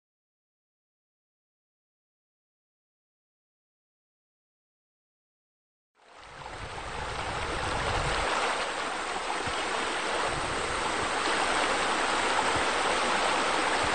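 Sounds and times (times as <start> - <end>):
water running and splashing: 6.2 - 13.9.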